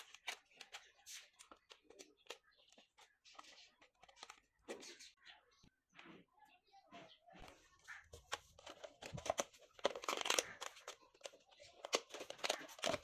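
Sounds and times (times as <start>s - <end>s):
plastic bottles crinkling: 0.0s - 5.0s, 7.9s - 13.0s.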